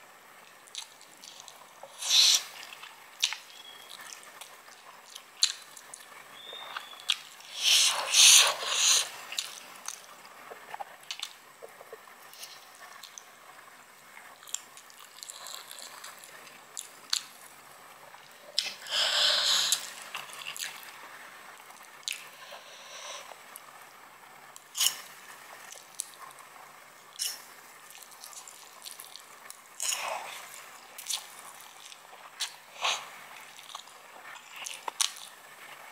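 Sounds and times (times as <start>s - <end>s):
wet chewing: 0.7s - 13.3s, 14.4s - 17.3s, 18.2s - 20.9s, 27.2s - 35.3s.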